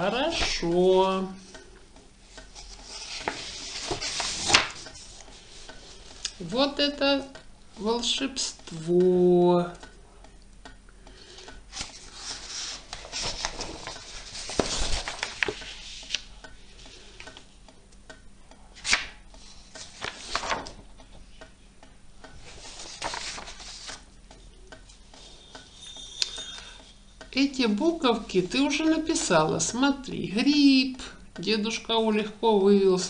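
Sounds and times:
paper rustling: 2.6s - 6.3s, 11.7s - 16.2s, 18.8s - 20.8s, 22.5s - 24.0s.

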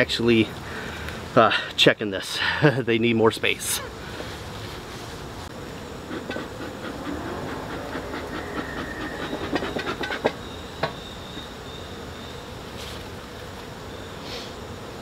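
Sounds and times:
bees buzzing: 3.9s - 15.0s
bellows hissing puffs: 6.0s - 10.4s, 14.2s - 14.6s.

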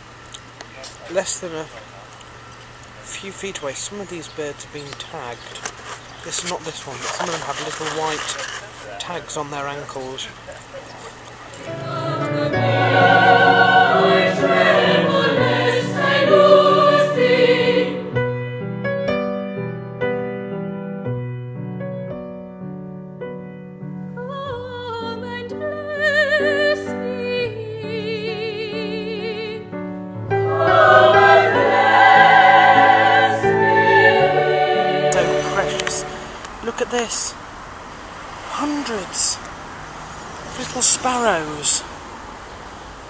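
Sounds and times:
choir singing held chords: 11.5s - 18.6s, 25.0s - 36.6s
piano chords: 11.5s - 36.6s.

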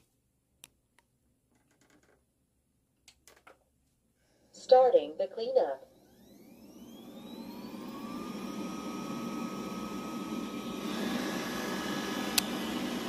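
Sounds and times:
robot vacuum motor whine: 5.8s - 13.0s.

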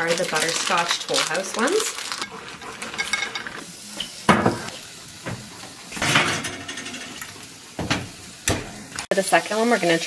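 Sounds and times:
dishes and utensils clattering: 2.1s - 8.7s.

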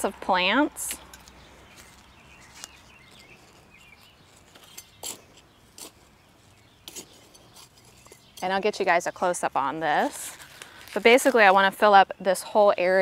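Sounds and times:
soft rustles: 0.9s - 8.6s, 9.9s - 11.8s.

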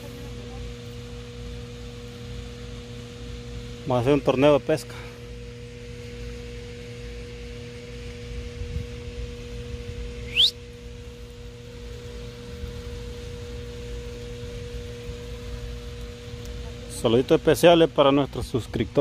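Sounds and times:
steady tonal hum: 0.0s - 19.0s
rising whistle: 10.2s - 10.8s.

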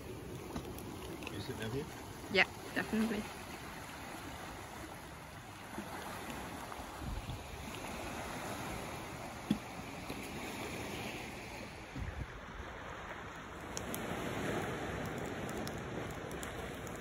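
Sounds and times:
campfire crackling: 0.0s - 17.0s
small waves washing on sand: 0.0s - 17.0s
wind on microphone: 5.9s - 9.4s, 10.2s - 13.2s.

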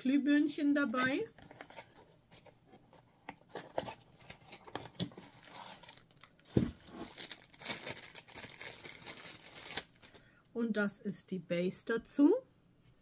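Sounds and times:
packaging rustling: 3.5s - 10.2s.

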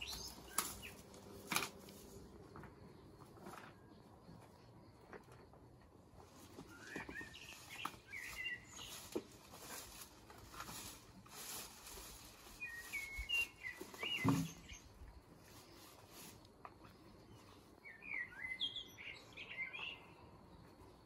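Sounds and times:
birds chirping: 0.0s - 1.5s, 6.3s - 10.0s, 11.8s - 15.9s, 16.8s - 21.0s
shrubs rustling and brushing: 0.0s - 4.0s, 6.2s - 17.9s.

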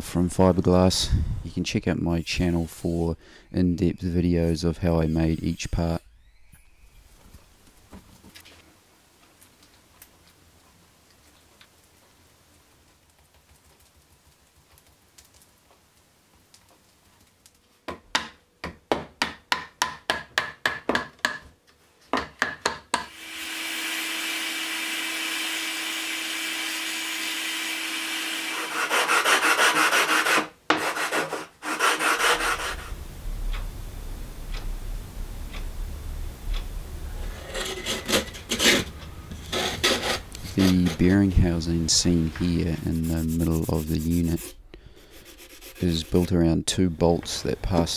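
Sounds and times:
rotary tool cutting whine: 23.1s - 29.3s
hand strokes rasping: 28.5s - 32.9s, 37.2s - 46.4s
rough rubbing with rumble: 28.9s - 47.4s.

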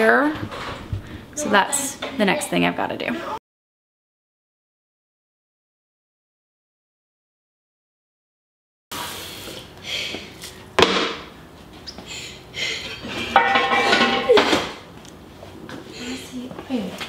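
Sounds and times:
dishes clattering: 12.8s - 14.8s.

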